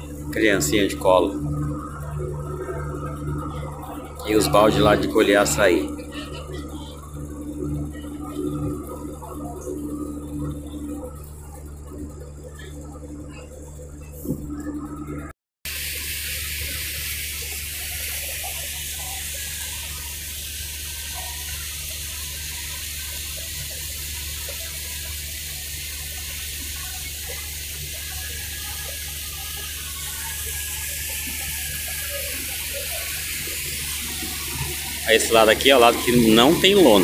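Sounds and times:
boat engine drone: 0:00.0 - 0:37.0.

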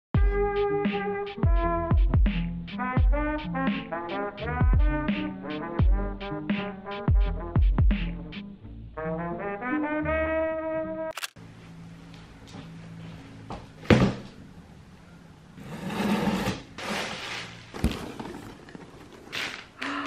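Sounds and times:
cardboard scraping and rustling: 0:15.6 - 0:19.7.

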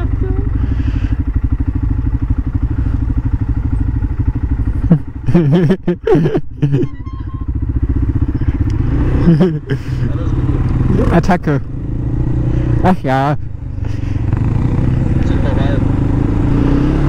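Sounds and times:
quad bike engine idling: 0:00.0 - 0:17.0
sounds rising and falling in pitch: 0:06.8 - 0:07.5.

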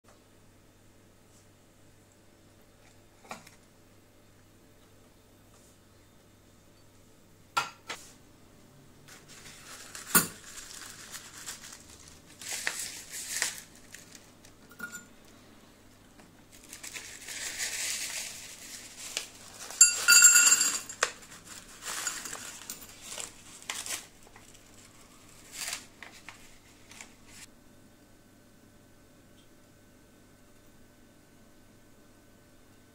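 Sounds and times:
paper crinkling: 0:09.1 - 0:14.7, 0:16.5 - 0:20.1, 0:20.8 - 0:27.5
charcoal clattering into metal bowl: 0:09.4 - 0:11.8, 0:16.8 - 0:23.9.

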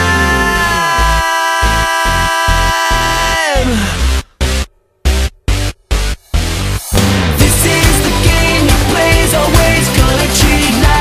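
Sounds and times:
choppy pulsing bass beat: 0:02.5 - 0:11.0.

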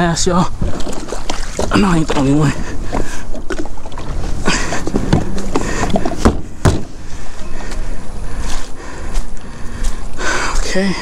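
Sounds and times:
knocks on plastic kayak: 0:06.2 - 0:06.9.

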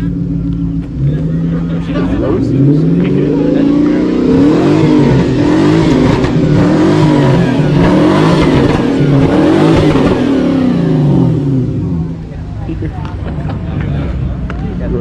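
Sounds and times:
car engine revving hard: 0:00.0 - 0:12.3
tyres screeching on asphalt: 0:00.9 - 0:12.2.

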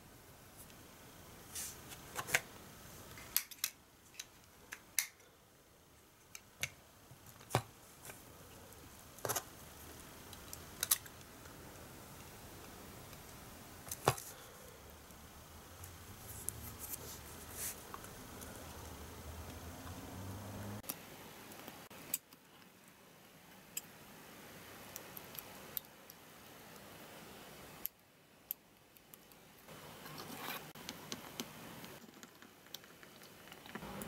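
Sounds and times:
low room noise: 0:00.0 - 0:34.0.

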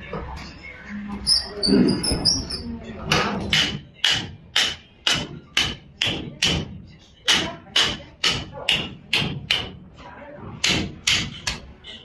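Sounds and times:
mallet knocking on a tool: 0:03.1 - 0:09.8, 0:10.6 - 0:11.6.

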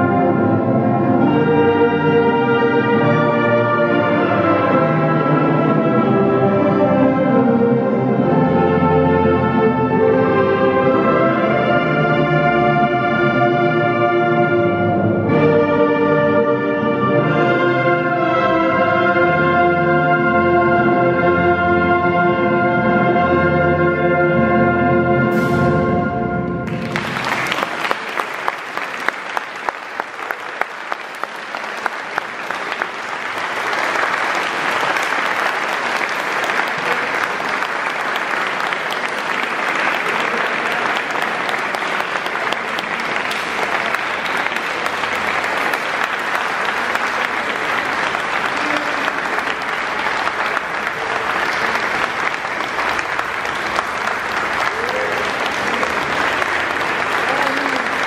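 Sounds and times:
audience applauding: 0:26.6 - 0:58.0.

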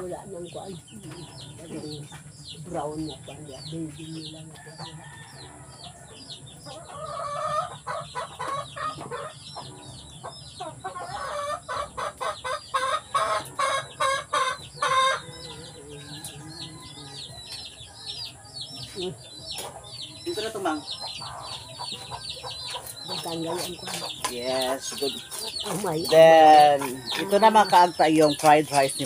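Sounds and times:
chicks peeping: 0:00.0 - 0:29.0
chicken calling: 0:10.6 - 0:17.1.

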